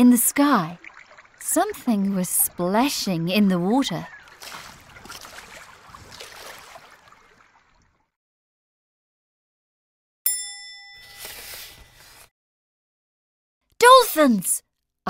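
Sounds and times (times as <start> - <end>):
water splashing: 0.0 - 8.2
bell-like ding: 10.3 - 11.5.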